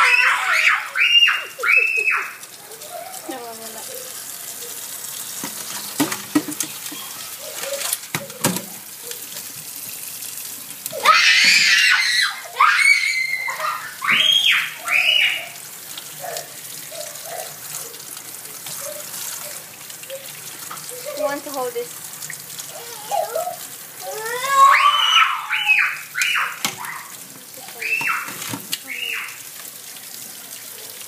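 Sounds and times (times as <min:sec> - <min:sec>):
person shrieking: 0:00.0 - 0:02.4
tap running into steel sink: 0:05.4 - 0:07.1, 0:08.1 - 0:08.8.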